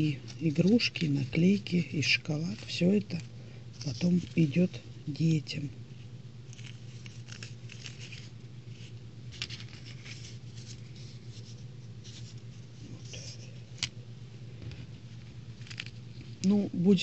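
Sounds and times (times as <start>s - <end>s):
paper sticker strip crinkling: 0.0s - 4.8s, 5.9s - 13.9s
steady low hum: 0.0s - 17.0s.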